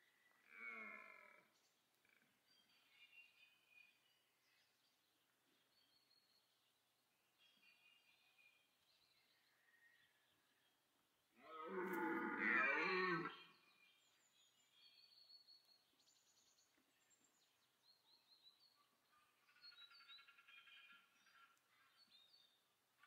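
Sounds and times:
stag roaring: 0:11.5 - 0:13.3.

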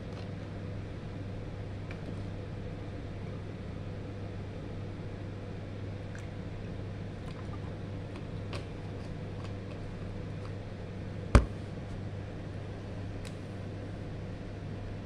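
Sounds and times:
carton knocking on table: 0:11.4 - 0:11.6.

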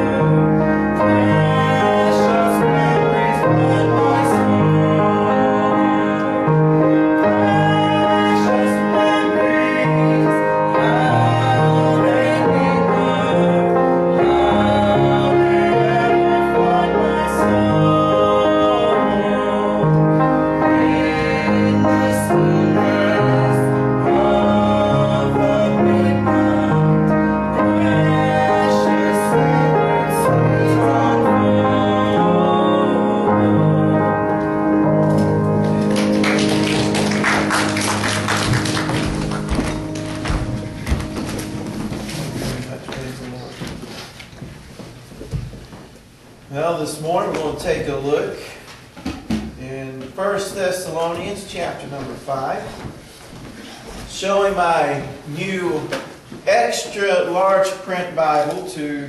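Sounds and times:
gospel music with bass line: 0:00.0 - 0:59.0
woman singing: 0:07.1 - 0:19.8.

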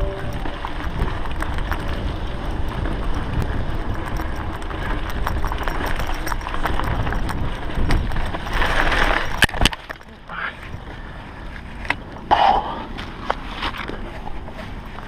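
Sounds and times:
wind buffeting microphone: 0:00.0 - 0:10.0
bike rattling clicks: 0:00.0 - 0:12.3
bike tyre rumble on dirt: 0:00.0 - 0:15.0.

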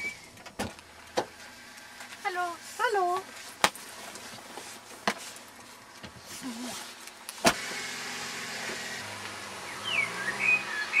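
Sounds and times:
birds chirping: 0:09.6 - 0:11.0.

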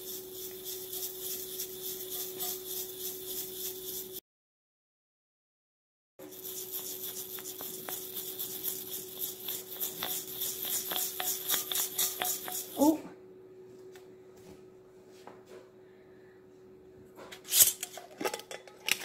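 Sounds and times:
grains rattling in a glass jar: 0:00.0 - 0:04.2, 0:06.3 - 0:12.8.

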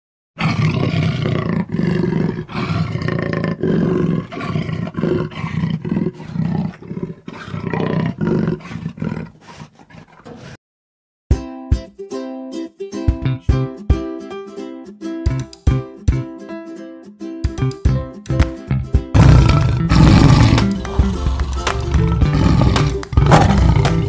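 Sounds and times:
big cat roaring: 0:00.4 - 0:10.6, 0:19.2 - 0:24.0.

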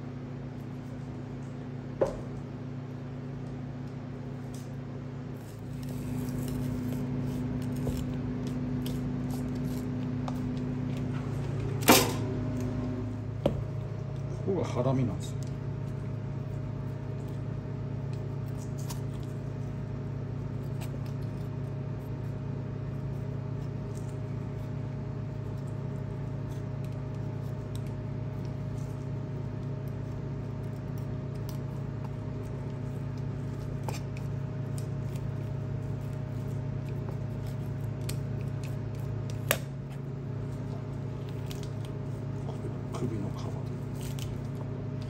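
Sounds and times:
low kitchen hum: 0:00.0 - 0:45.0
knife knocking on cutting board: 0:02.0 - 0:02.3.

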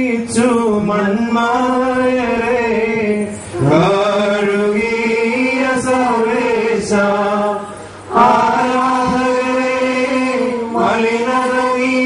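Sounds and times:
man chanting: 0:00.0 - 0:07.6.

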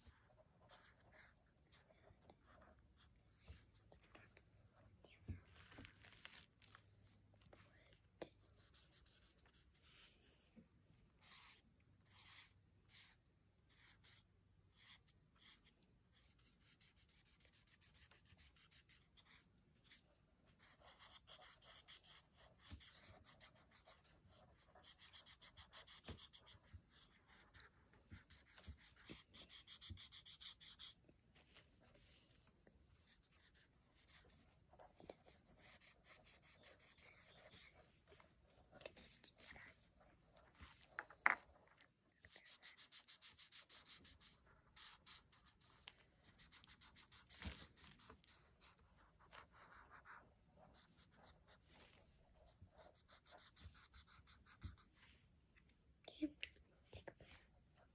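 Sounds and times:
marker scratching on paper: 0:00.1 - 0:03.9, 0:08.3 - 0:10.1, 0:11.1 - 0:32.2, 0:32.9 - 0:38.2, 0:42.2 - 0:55.1.

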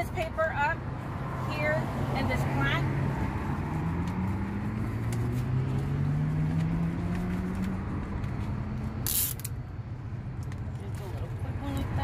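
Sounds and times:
vehicle engine speeding up: 0:01.1 - 0:09.3.

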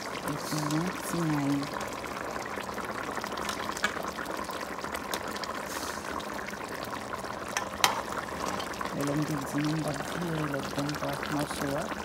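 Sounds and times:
sauce bubbling in a pan: 0:00.0 - 0:12.0.

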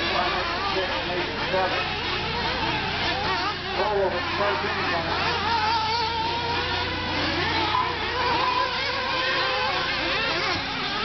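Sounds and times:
rc buggy engines whining: 0:00.0 - 0:11.0.

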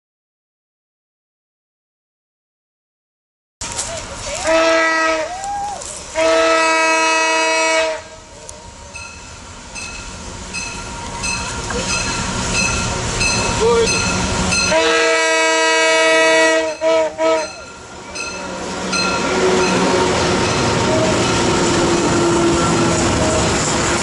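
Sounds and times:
locomotive engine rumble: 0:03.6 - 0:24.0
train horn blasts: 0:04.4 - 0:05.4, 0:06.1 - 0:08.3, 0:14.6 - 0:17.8, 0:18.9 - 0:23.6.

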